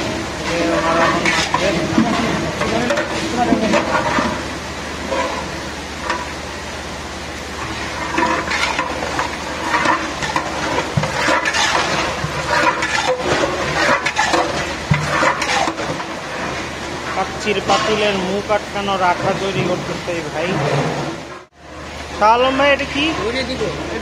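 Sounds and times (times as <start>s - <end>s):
metal spatula scraping meat in pot: 0.4s - 4.4s, 7.6s - 16.6s
wet squelches: 7.4s - 17.5s.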